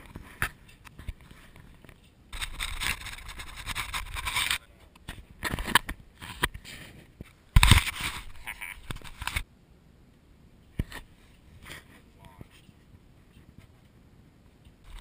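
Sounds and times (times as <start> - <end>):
slingshot clicks and scrapes: 2.4 - 4.6.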